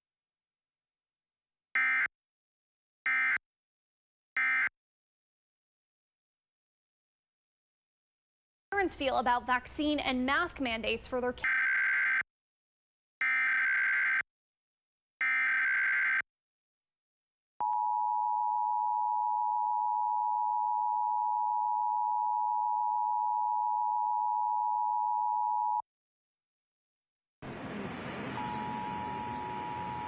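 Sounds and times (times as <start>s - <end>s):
two-tone attention signal: 28.3s - 30.0s.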